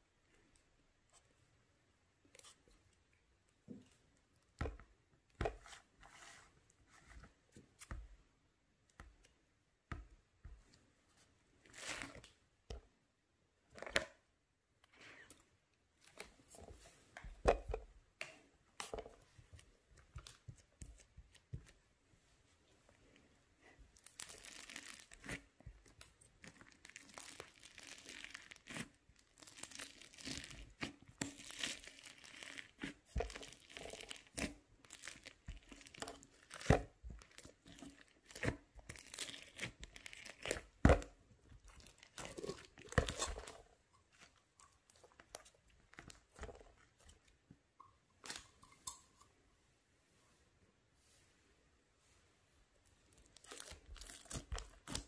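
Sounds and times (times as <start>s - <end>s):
slime crackling and tearing: 24.0s - 41.1s, 53.2s - 55.0s.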